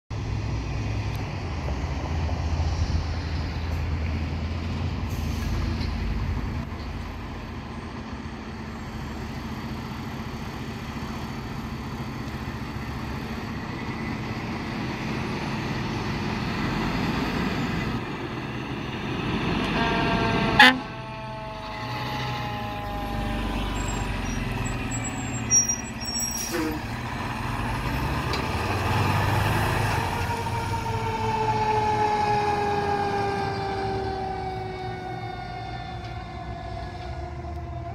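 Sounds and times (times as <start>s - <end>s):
fire truck diesel engine rumbling: 0.1s - 37.9s
falling siren tone: 19.2s - 26.4s, 28.8s - 37.9s
loud horn blast: 19.6s - 23.3s.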